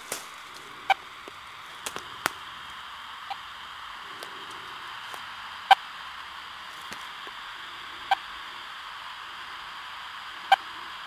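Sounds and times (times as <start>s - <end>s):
radio receiver static hiss: 0.0s - 11.0s.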